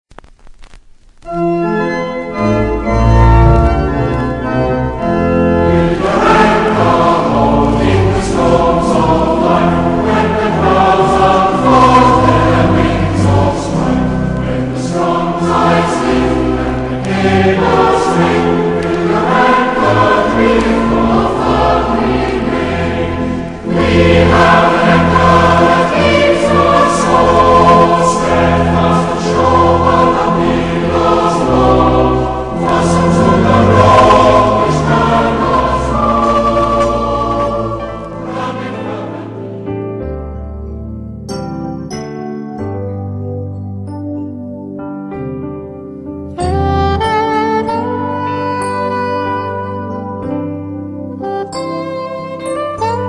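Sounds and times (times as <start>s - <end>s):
organ chords: 0.2s - 53.0s
choir singing: 2.7s - 39.8s.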